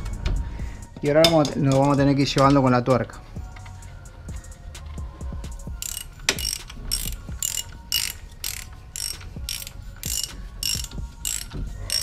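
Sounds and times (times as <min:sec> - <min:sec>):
ratchet wrench clicking: 0:05.6 - 0:12.0.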